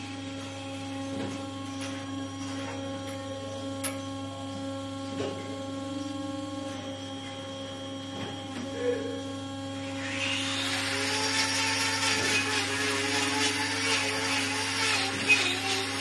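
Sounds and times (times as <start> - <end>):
low electric hum: 0.0 - 16.0
angle grinder grinding hoof: 8.2 - 16.0.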